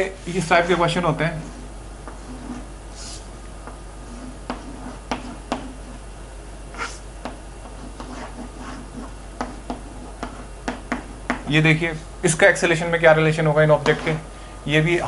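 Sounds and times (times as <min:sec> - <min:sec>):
chalk scratching on chalkboard: 0:00.2 - 0:03.3, 0:04.0 - 0:06.0, 0:06.7 - 0:07.0, 0:07.6 - 0:11.4
chalk tapping on chalkboard: 0:01.4 - 0:06.0, 0:06.8 - 0:11.5.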